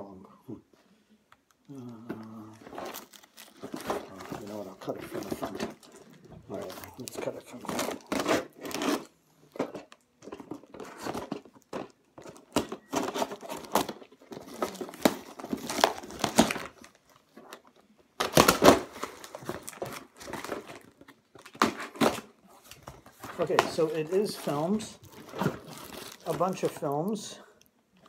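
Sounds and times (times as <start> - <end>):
packing crinkling: 1.8 - 27.4
cardboard box cut and torn open: 7.1 - 9.1.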